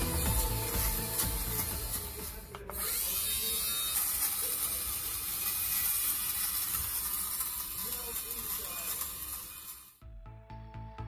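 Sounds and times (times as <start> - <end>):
electric lint remover whirring: 0.0 - 10.0.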